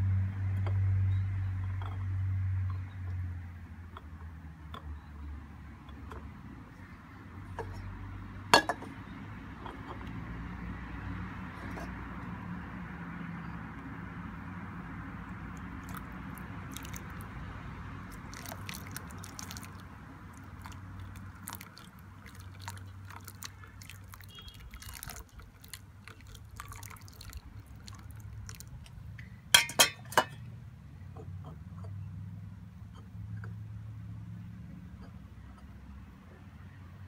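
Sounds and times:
water trickling and dripping: 0:15.4 - 0:29.0.

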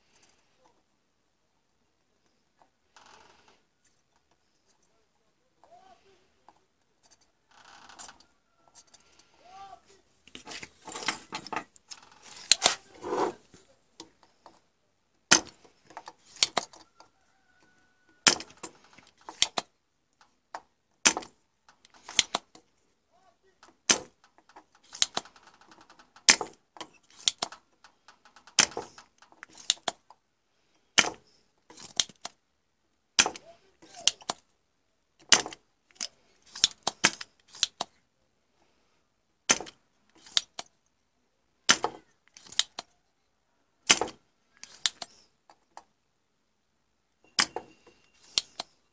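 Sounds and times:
rustling handling noise: 0:03.4 - 0:14.7.

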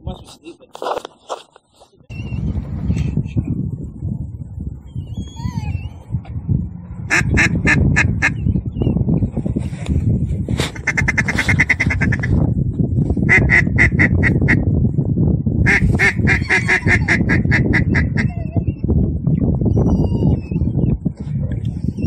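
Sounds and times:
steady low rumble: 0:02.3 - 0:22.0
duck quacking: 0:07.1 - 0:08.4, 0:10.7 - 0:12.3, 0:13.3 - 0:14.6, 0:15.7 - 0:18.3.

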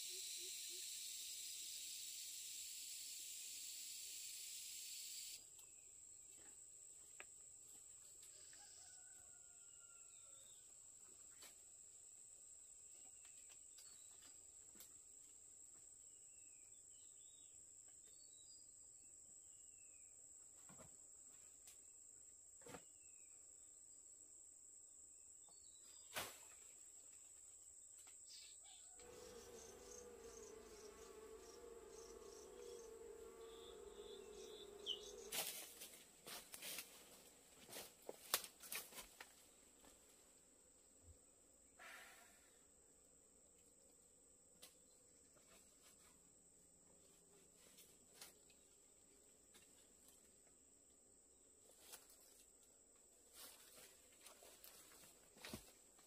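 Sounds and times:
high-pitched insect drone: 0:00.0 - 0:05.4, 0:29.0 - 0:37.0
bird chirps: 0:28.3 - 0:35.5
low buzzing hum: 0:29.0 - 0:41.6.

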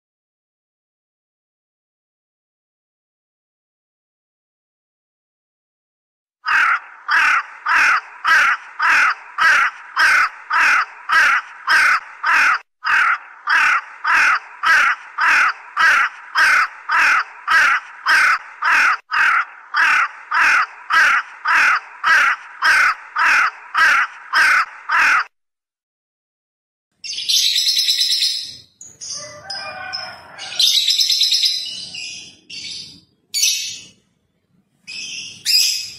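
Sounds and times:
crow cawing: 0:06.4 - 0:25.3, 0:29.1 - 0:31.2.

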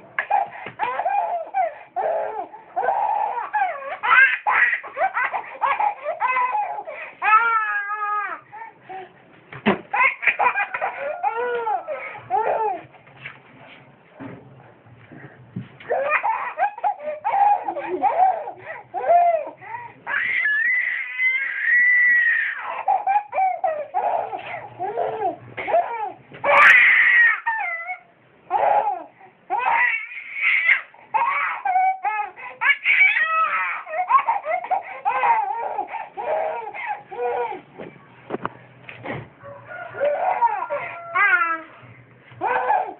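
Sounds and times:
baby laughing and squealing: 0:00.2 - 0:08.4, 0:10.0 - 0:12.9, 0:15.9 - 0:37.6, 0:40.0 - 0:41.7, 0:42.4 - 0:42.9
baby shrieking: 0:00.2 - 0:08.4, 0:10.0 - 0:12.8, 0:15.9 - 0:37.6, 0:40.0 - 0:41.7, 0:42.4 - 0:42.9.

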